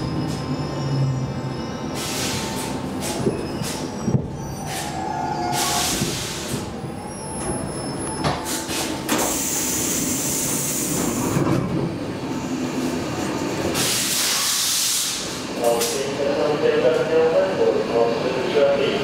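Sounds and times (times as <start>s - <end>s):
wheel and brake squeal: 0.0s - 6.2s, 6.9s - 8.7s
train doors hissing open: 1.9s - 3.9s, 4.6s - 6.7s, 8.2s - 11.4s, 13.7s - 16.1s.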